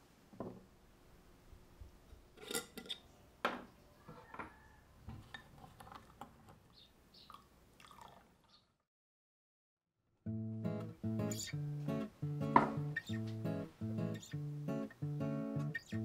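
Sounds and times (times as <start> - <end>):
glass and metal knocks: 12.5 - 12.8.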